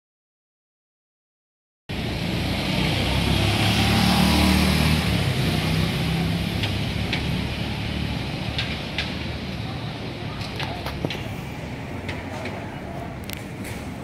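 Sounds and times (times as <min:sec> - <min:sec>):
vehicle engine passing: 0:01.9 - 0:08.8.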